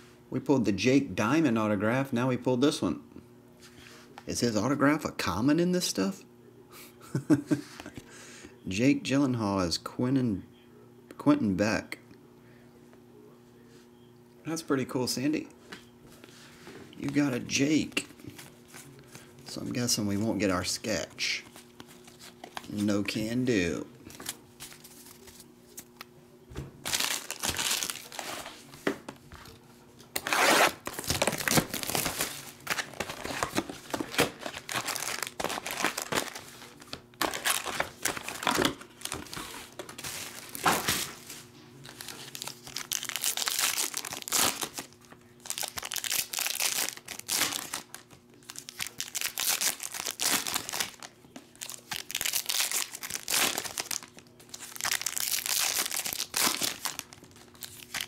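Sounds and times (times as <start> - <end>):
foil wrappers crinkling and tearing: 21.2 - 23.3, 26.8 - 28.6, 30.2 - 58.0.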